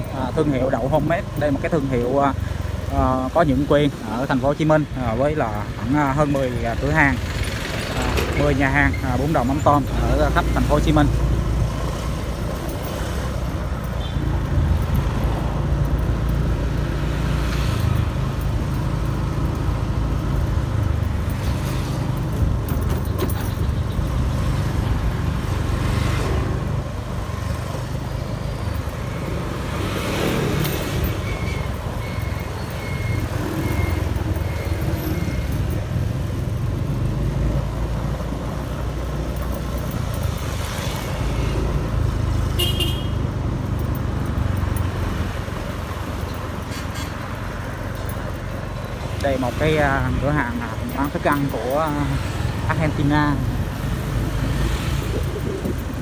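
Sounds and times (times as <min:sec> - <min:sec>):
road traffic rumble: 0:00.0 - 0:56.0
vehicles passing by: 0:00.0 - 0:56.0.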